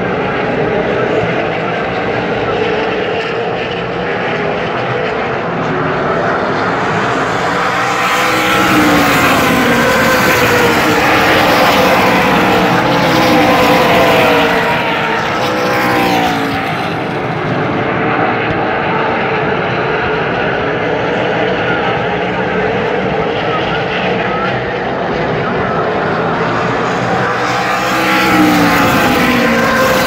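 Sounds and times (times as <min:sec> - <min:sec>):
race car engines passing: 0:00.0 - 0:30.0.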